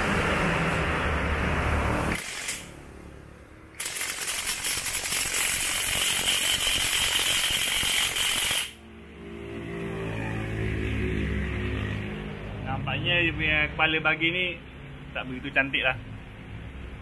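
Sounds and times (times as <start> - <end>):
impact wrench hammering: 3.8 - 8.8.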